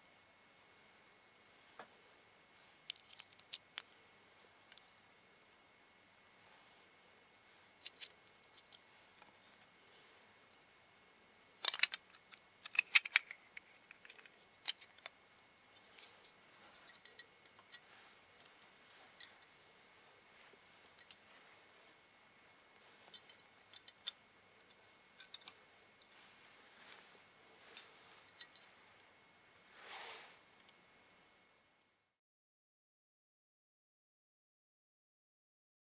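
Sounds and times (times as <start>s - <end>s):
small plastic parts clicking: 2.9s - 3.9s, 7.8s - 8.8s, 11.6s - 15.1s, 23.1s - 26.1s.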